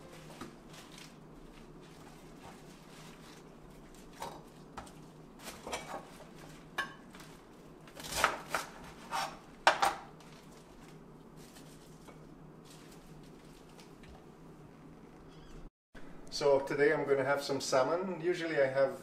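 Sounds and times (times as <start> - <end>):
dishes and utensils clattering: 5.5 - 6.2.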